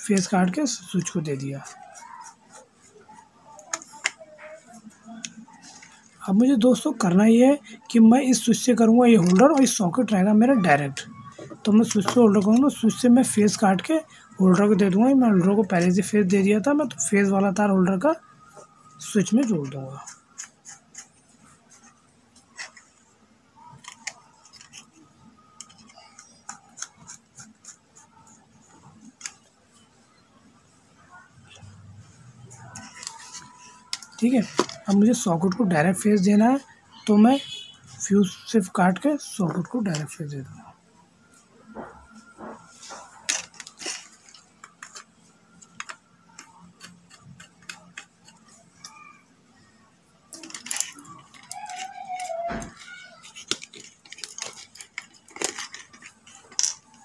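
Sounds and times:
screwdriver clicking and scraping: 23.7 - 29.5, 50.4 - 57.0
scraping rustles of handling wires: 42.1 - 48.9, 50.3 - 57.0.

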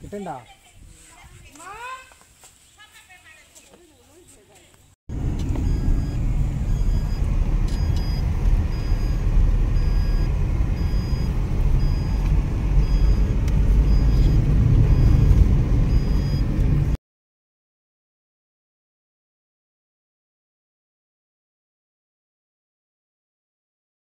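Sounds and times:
car cabin rumble: 5.1 - 17.0.

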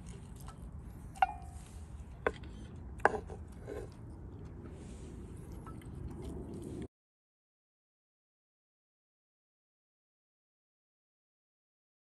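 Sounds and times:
low steady background noise: 0.0 - 6.9.

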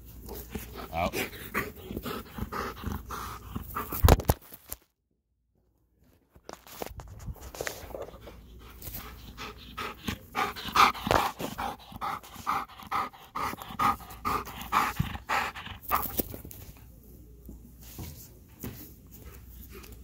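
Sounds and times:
dog panting hard: 0.2 - 4.1, 8.1 - 16.2.

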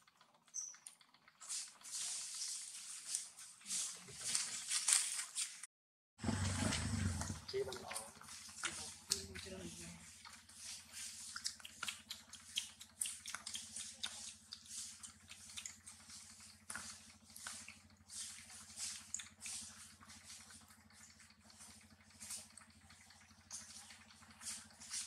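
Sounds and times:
monkey chewing wetly: 6.2 - 25.0.

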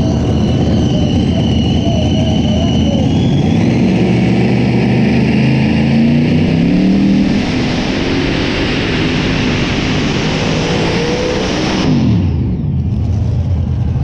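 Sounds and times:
tractor engine revving hard: 0.0 - 12.6.

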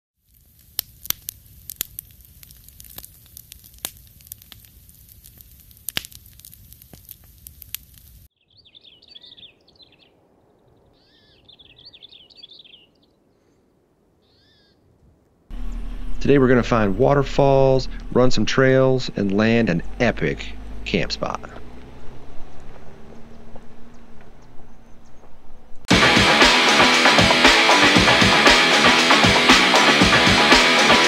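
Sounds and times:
campfire crackling and popping: 0.2 - 8.3
birds calling: 8.3 - 14.9, 15.5 - 25.7.

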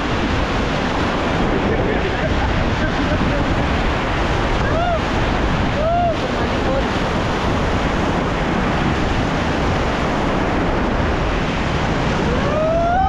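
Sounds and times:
whitewater rapids rushing: 0.0 - 13.0
wind on microphone: 0.0 - 13.0
person shouting: 4.6 - 5.0, 5.8 - 6.2, 12.3 - 13.0.

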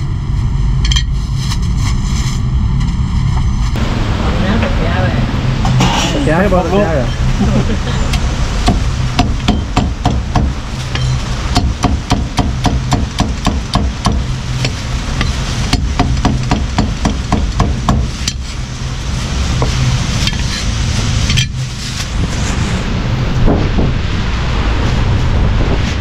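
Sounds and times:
steady low hum: 0.0 - 26.0
cleaver chopping on wooden block: 11.6 - 14.8.

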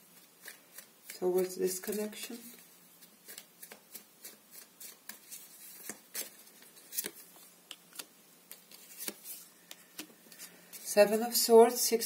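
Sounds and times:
cards being shuffled: 0.1 - 10.9.

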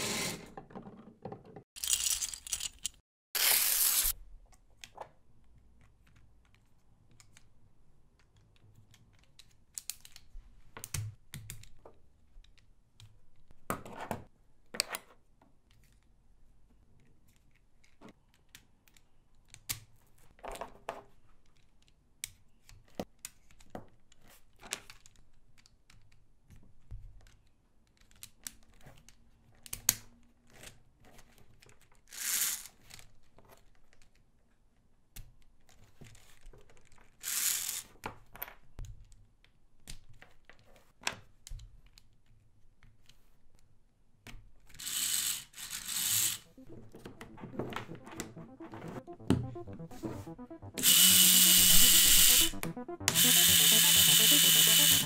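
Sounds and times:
plastic parts clicking and rattling: 0.6 - 4.0.

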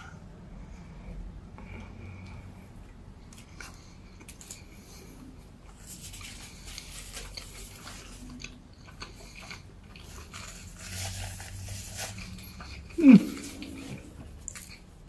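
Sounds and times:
biting into burger: 3.4 - 15.0.

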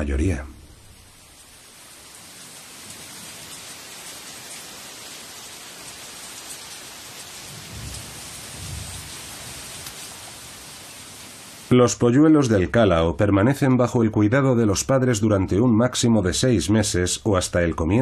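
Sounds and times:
heavy rain pouring: 0.0 - 11.8
thunder rumbling: 7.4 - 10.5.

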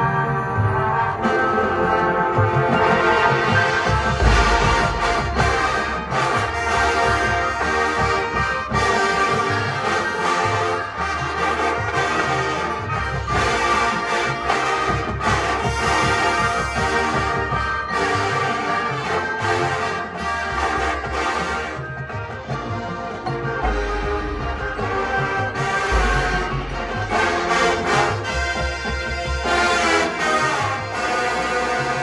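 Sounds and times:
marching band playing: 0.0 - 32.0
heavy low drum hit: 4.2 - 6.9, 23.6 - 28.0.

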